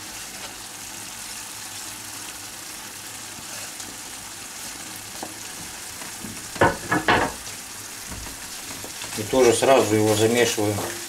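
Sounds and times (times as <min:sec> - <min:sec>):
sauce sizzling in a skillet: 0:00.0 - 0:11.0
faint knock: 0:06.2 - 0:07.4.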